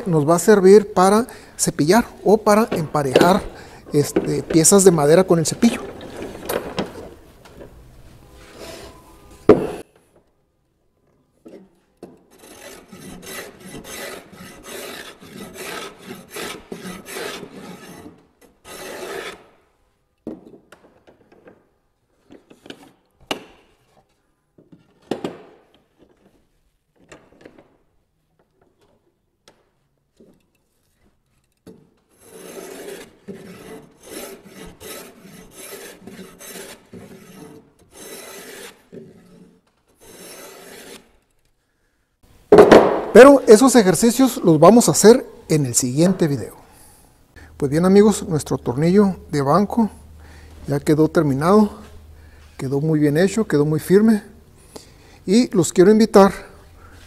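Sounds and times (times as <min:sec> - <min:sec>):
sharp knocks: 0:02.7 - 0:04.8, 0:42.5 - 0:43.4
hand plane shaving wood: 0:12.3 - 0:19.6, 0:32.1 - 0:41.3.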